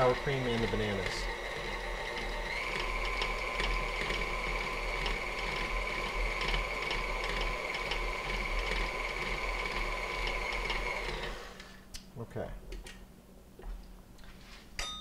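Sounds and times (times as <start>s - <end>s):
stand mixer motor whine: 0.0s - 11.8s
regular clicking of mixer: 0.0s - 12.1s.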